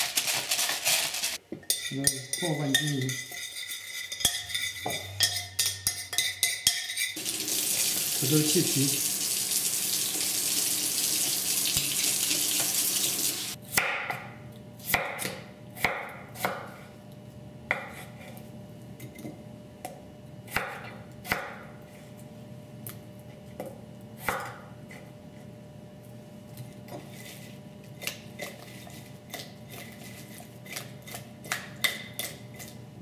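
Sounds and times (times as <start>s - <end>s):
knife chopping on wooden board: 13.7s - 14.3s, 14.9s - 16.8s, 20.5s - 21.7s.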